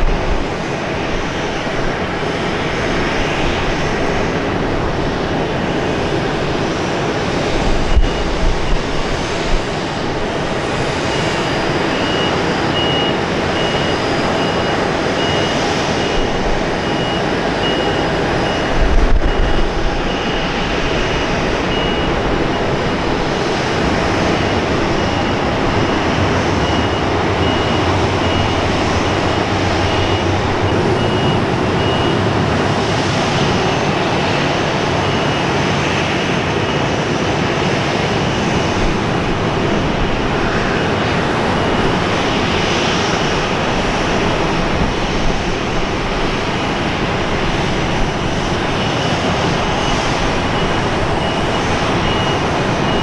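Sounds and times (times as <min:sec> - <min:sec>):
jet engines running: 0:00.0 - 0:53.0
high beep: 0:11.0 - 0:23.0, 0:24.4 - 0:32.5, 0:50.6 - 0:53.0.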